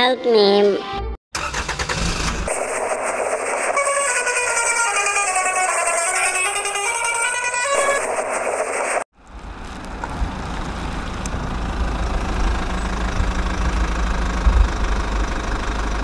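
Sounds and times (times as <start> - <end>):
toy engine idling rumble: 11.1 - 16.0.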